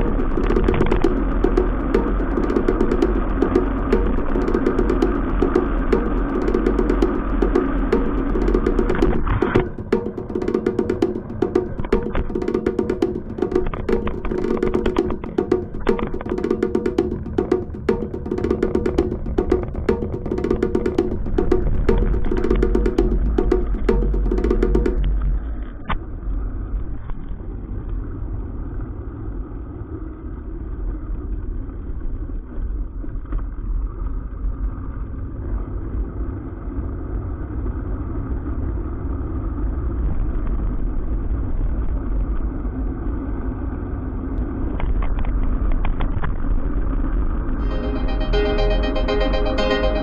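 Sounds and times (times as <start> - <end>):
wind rumble on microphone: 25.0 - 47.6.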